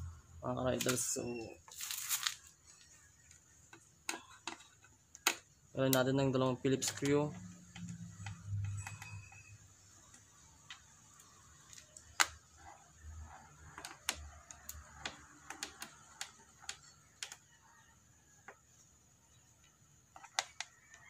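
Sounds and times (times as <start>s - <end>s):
screwdriver clicks and ticks: 4.5s - 12.4s, 13.6s - 17.4s.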